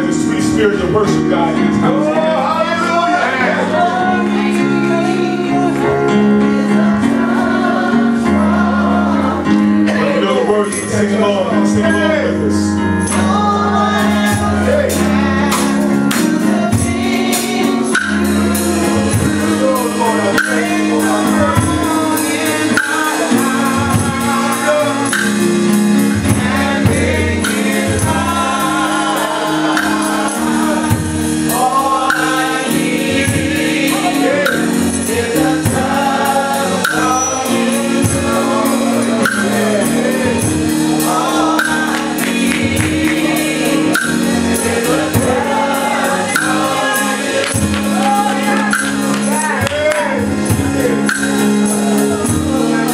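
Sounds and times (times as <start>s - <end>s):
voices singing gospel: 0.0s - 52.9s
fast percussion beat: 14.2s - 52.9s.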